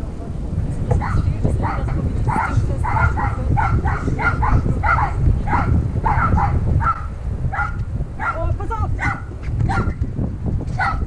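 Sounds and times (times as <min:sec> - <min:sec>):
low rumble: 0:00.0 - 0:11.0
dog barking: 0:01.0 - 0:08.4, 0:09.0 - 0:10.0, 0:10.8 - 0:11.0.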